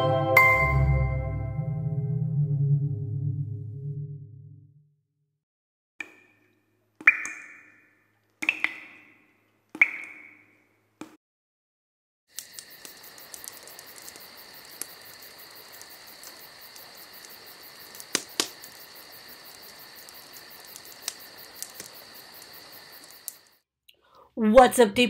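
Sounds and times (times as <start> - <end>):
crickets trilling: 12.3 - 23.6.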